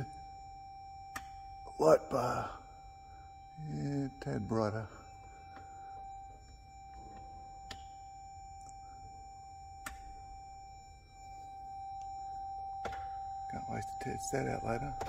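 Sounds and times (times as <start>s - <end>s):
car warning chime tone: 0.0s - 15.0s
faint clicks: 1.1s - 1.4s, 6.4s - 9.0s, 9.7s - 10.3s.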